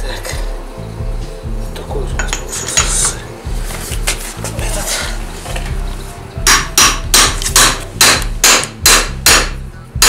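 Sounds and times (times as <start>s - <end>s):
hammer striking metal bar: 6.4s - 9.6s.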